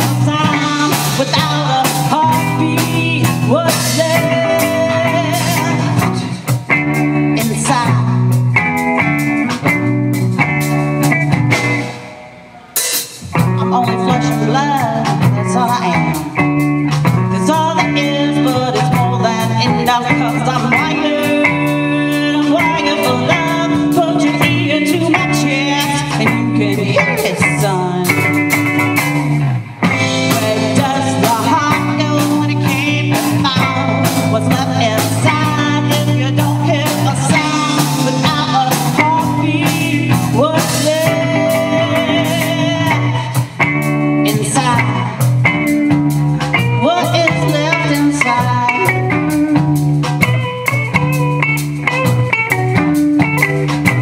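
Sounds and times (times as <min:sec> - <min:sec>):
person singing: 0:00.0 - 0:08.4, 0:11.8 - 0:54.0
blues-rock band playing: 0:00.0 - 0:54.0
drum kit: 0:00.0 - 0:54.0
electric guitars: 0:00.0 - 0:54.0.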